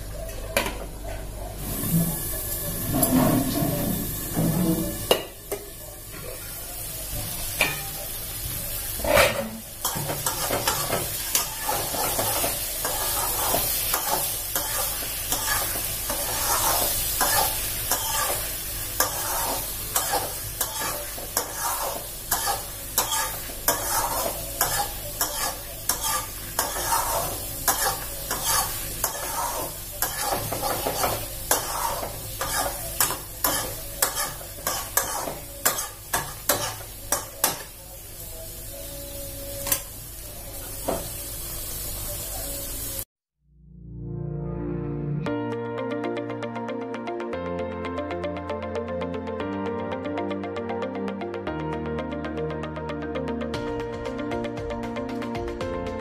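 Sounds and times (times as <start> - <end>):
curry sizzling: 1.6 - 43.1
metal spatula scraping pan: 9.0 - 37.6.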